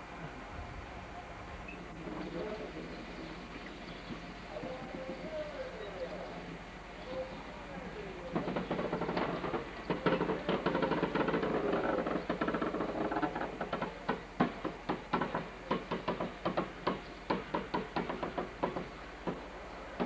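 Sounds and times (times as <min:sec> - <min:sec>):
train wheels clacking over rail joints: 0:04.0 - 0:05.6, 0:07.8 - 0:20.0.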